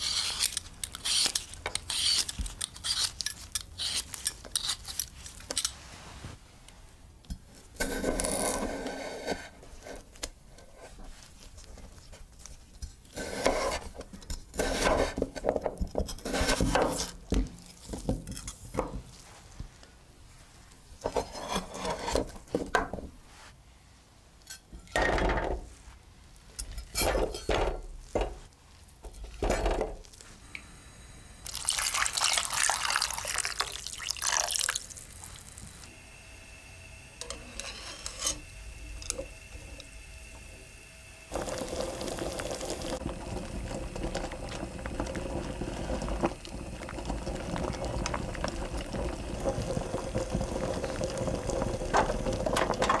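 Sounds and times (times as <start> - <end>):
water boiling in pan: 31.4 - 36.0, 37.2 - 53.0
water pouring: 31.5 - 35.6, 41.3 - 53.0.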